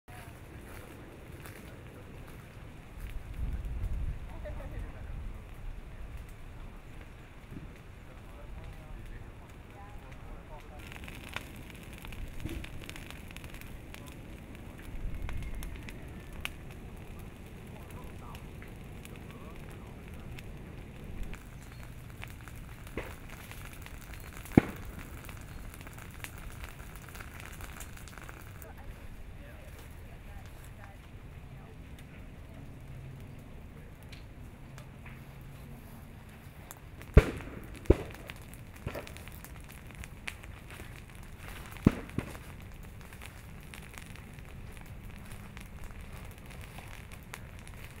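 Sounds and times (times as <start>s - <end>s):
vegetation crackling as it burns: 0.1s - 48.0s
small pops: 21.3s - 28.5s, 36.7s - 48.0s.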